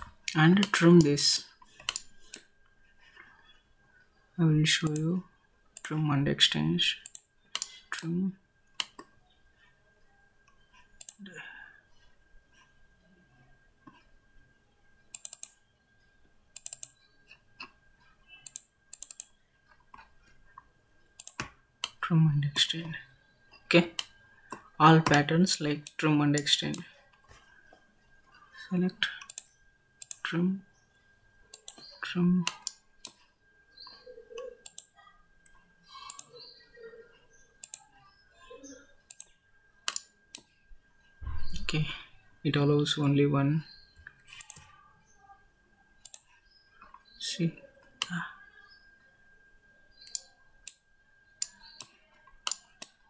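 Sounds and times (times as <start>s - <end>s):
computer mouse clicking: 0.0s - 2.5s, 5.8s - 6.0s, 7.0s - 8.1s, 8.8s - 9.1s, 10.5s - 11.3s, 15.1s - 15.6s, 16.6s - 17.8s, 18.4s - 20.4s, 21.2s - 22.0s, 29.2s - 30.2s, 31.5s - 31.9s, 32.5s - 36.4s, 37.6s - 37.8s, 39.1s - 40.5s, 44.0s - 44.7s, 46.0s - 47.1s, 50.0s - 50.8s, 51.4s - 53.0s
faint high hum: 0.0s - 53.0s.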